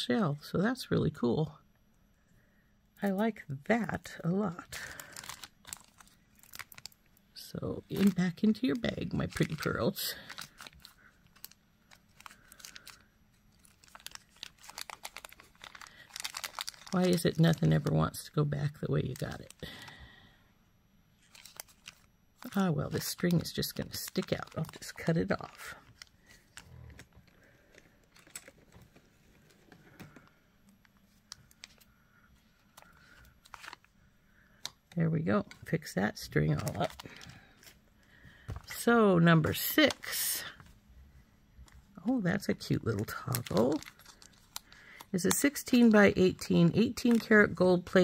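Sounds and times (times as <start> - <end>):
plastic zip bag crinkling: 4.6 - 20.0, 21.2 - 31.9, 32.6 - 33.9, 35.6 - 37.8, 42.4 - 48.0.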